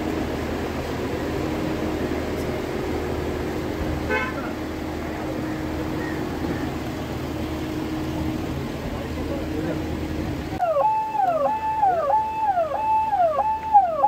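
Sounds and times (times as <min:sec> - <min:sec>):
car horn toot: 0:04.1 - 0:04.6.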